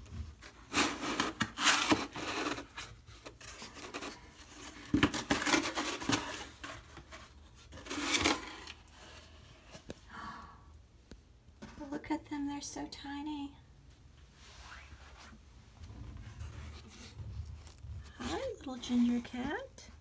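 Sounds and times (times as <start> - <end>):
cardboard scraping and rubbing: 0.0 - 9.8, 14.4 - 19.7.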